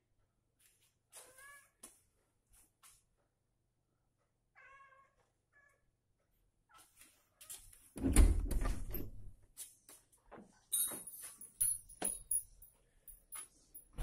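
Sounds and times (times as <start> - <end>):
cat meowing: 1.2 - 1.8, 4.5 - 5.9.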